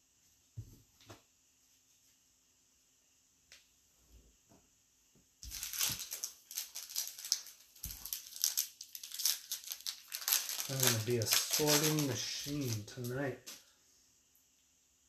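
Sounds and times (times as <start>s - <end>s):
foil wrapper crinkling: 5.4s - 13.7s.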